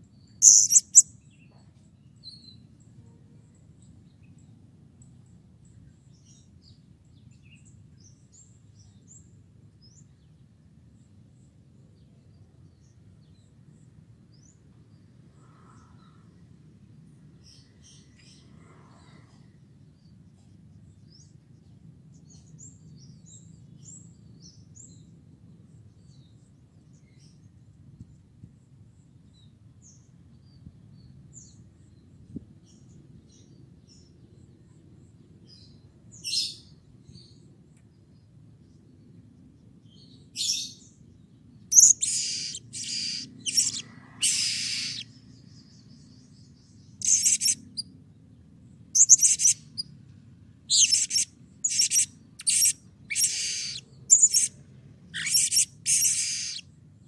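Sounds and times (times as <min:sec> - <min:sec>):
parrot high-pitched calls: 0:00.4 - 0:01.0, 0:41.7 - 0:45.1, 0:47.0 - 0:47.8, 0:49.0 - 0:49.8, 0:50.7 - 0:54.5, 0:55.2 - 0:56.6.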